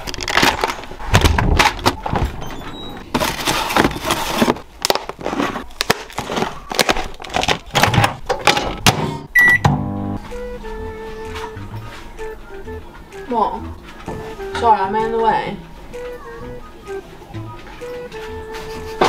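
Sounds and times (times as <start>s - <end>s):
food packaging rustling: 0.0s - 8.8s.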